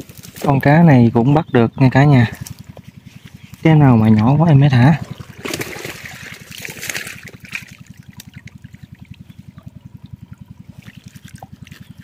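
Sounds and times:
boat engine idling: 0:00.0 - 0:12.0
water splashing and trickling: 0:02.4 - 0:12.0.

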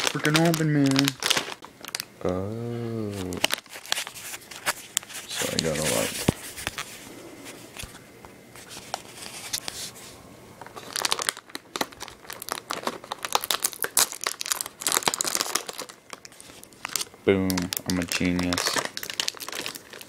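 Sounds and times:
plastic wrapper crinkling: 0:00.0 - 0:02.1, 0:03.0 - 0:07.0, 0:10.6 - 0:20.0.

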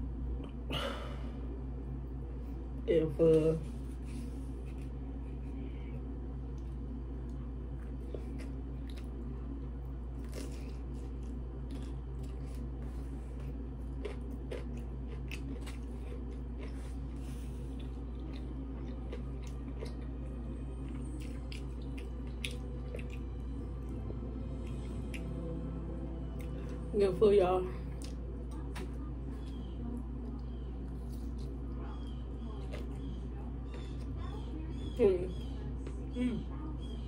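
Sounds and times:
steady low hum: 0:00.0 - 0:37.0
chewing and crunching cucumber: 0:06.5 - 0:25.6, 0:27.9 - 0:35.0.

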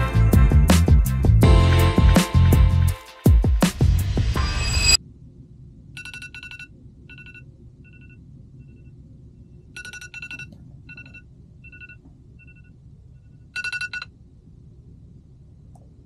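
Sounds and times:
steady low hum: 0:03.7 - 0:16.0.

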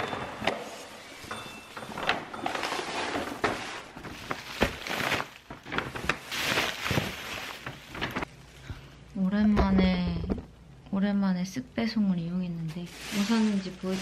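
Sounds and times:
plastic bags rustling and crinkling: 0:02.4 - 0:08.3, 0:12.7 - 0:14.0.

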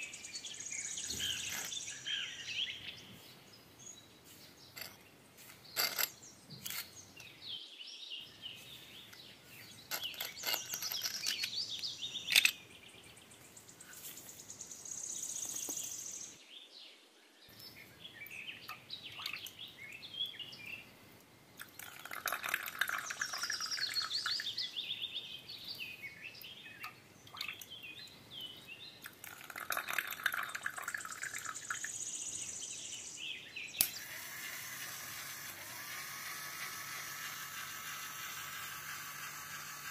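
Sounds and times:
birds chirping and singing: 0:00.0 - 0:16.7, 0:22.0 - 0:34.3
small geared motor running: 0:33.8 - 0:39.9.

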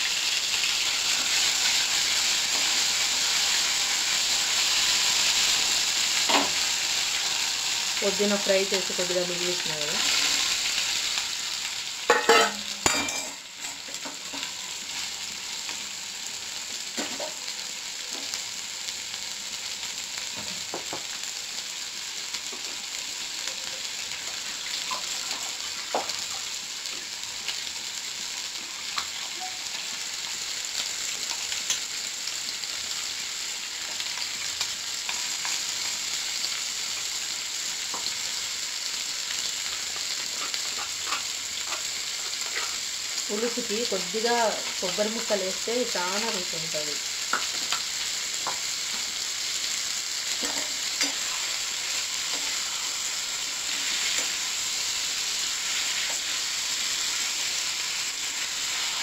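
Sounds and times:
vegetables sizzling in hot oil: 0:00.0 - 0:59.0
metal bowl and ladle clanking: 0:12.1 - 0:13.4.

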